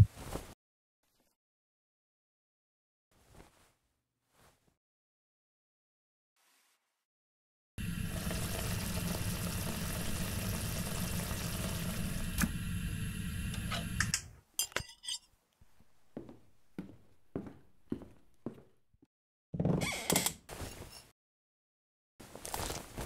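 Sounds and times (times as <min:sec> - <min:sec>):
tap water running into sink: 0:07.8 - 0:12.7
plate and cutlery clinks: 0:14.6 - 0:15.2.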